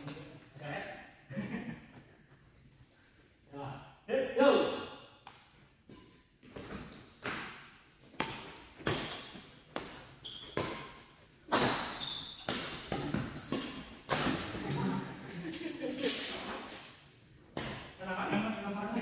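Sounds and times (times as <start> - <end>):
shoe squeaks on court: 5.9 - 7.3, 8.9 - 14.5, 15.3 - 16.8.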